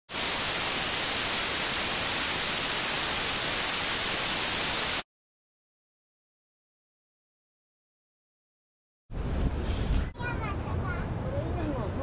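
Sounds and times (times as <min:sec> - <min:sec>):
static white noise hiss: 0:00.1 - 0:05.0.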